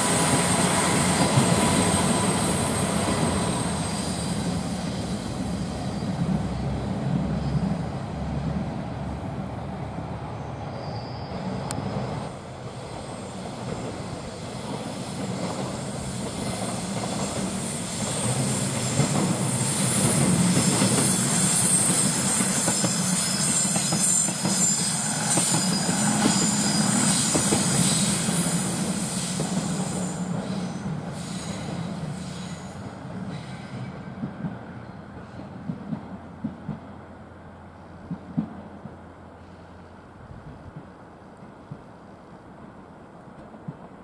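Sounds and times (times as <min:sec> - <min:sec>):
high wheel squeal: 0:10.4 - 0:12.3, 0:17.6 - 0:34.0.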